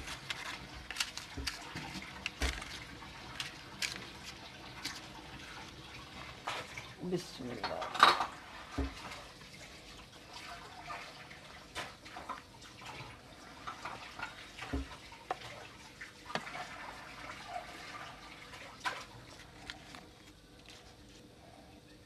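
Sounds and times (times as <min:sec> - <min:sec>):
batter plopping and dripping: 0:00.0 - 0:06.9.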